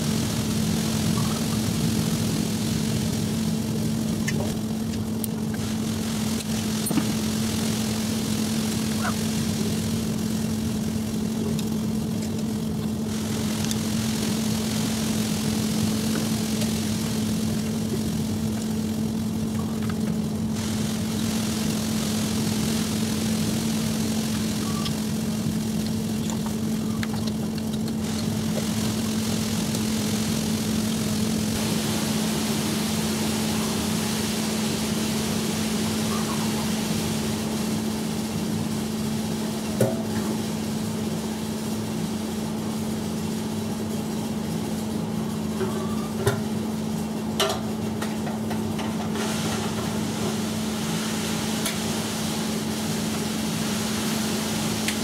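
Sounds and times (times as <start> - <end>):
mower engine idling: 0.0 - 55.0.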